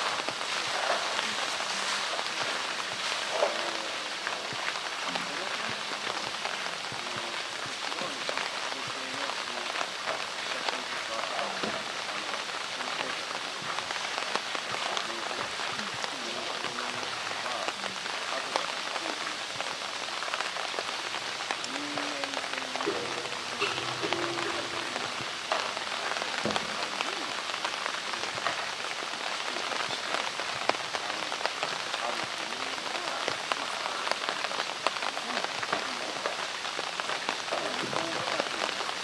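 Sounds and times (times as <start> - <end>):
falling water: 0.0 - 39.0.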